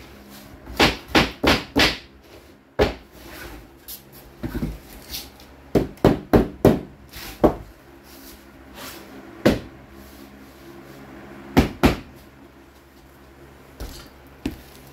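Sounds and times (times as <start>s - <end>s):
hammer knocking on wooden planks: 0.7s - 2.1s, 5.7s - 7.6s.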